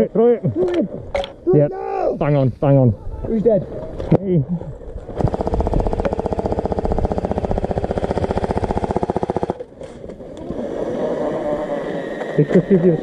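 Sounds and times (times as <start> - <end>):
gearbox whine: 5.1 - 13.0
airsoft gun full-auto burst: 5.2 - 9.6.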